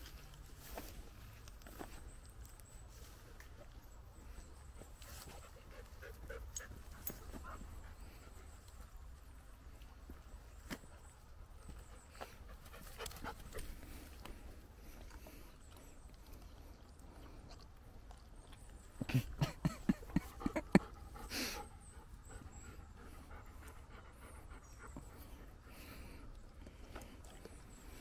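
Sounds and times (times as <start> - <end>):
dog panting: 3.6 - 9.0, 11.5 - 18.7, 19.4 - 28.0.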